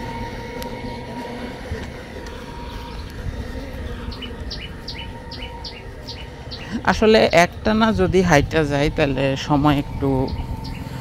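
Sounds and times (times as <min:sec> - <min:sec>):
faint constant hum: 0:00.0 - 0:11.0
low outdoor rumble: 0:00.0 - 0:11.0
bird chirping: 0:02.6 - 0:07.6, 0:08.2 - 0:11.0.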